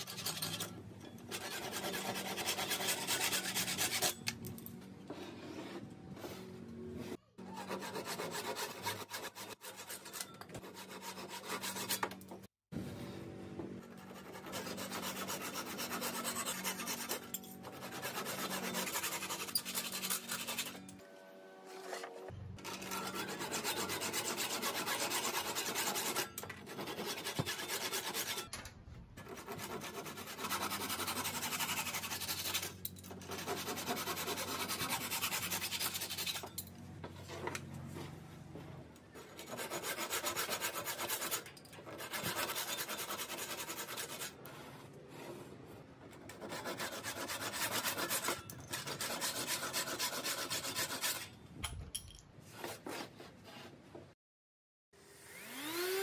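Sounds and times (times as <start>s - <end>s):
hand saw cutting wood: 0.0s - 4.4s, 7.4s - 12.4s, 13.9s - 21.0s, 21.6s - 28.5s, 29.2s - 37.6s, 39.1s - 44.6s, 46.3s - 51.3s.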